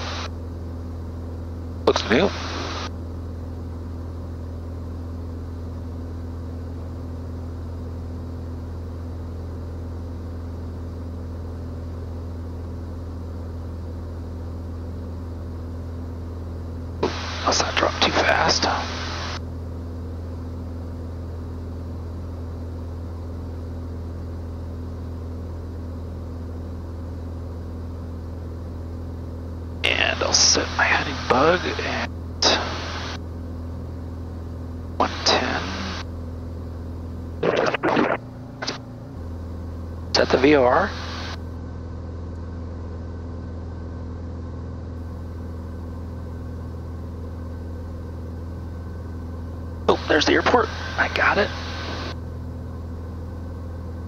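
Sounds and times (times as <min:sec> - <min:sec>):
propeller plane engine drone: 0:00.0 - 0:54.0.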